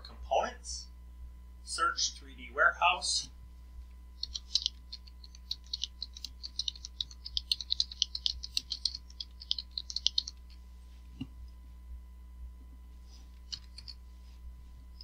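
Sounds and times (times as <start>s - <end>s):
computer keyboard typing: 4.2s - 10.6s, 13.4s - 14.0s.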